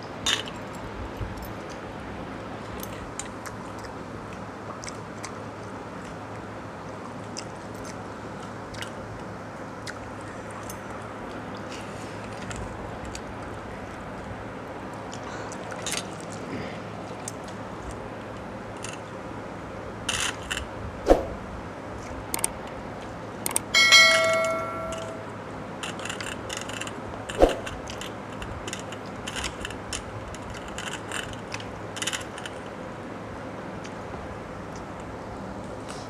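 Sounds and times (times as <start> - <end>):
clinks of steel dishes: 23.8 - 25.2
bell-like ding: 23.8 - 25.3.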